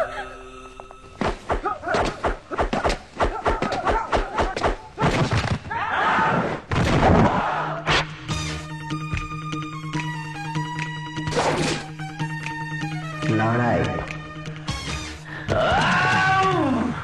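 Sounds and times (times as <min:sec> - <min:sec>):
punch and body-hit thuds: 0:06.7 - 0:08.0.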